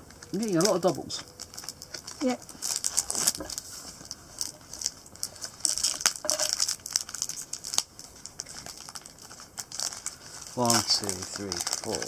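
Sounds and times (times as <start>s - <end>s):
foil packets crinkling: 0.0s - 12.0s.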